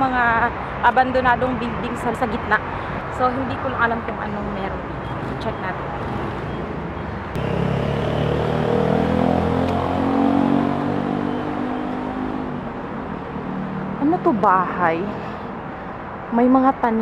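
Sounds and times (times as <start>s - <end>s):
vehicle engine passing: 4.7s - 16.2s.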